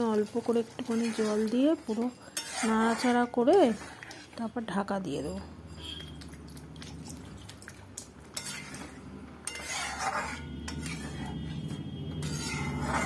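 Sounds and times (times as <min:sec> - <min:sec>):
metal spatula scraping a pan: 0:00.4 - 0:04.5, 0:08.3 - 0:13.0.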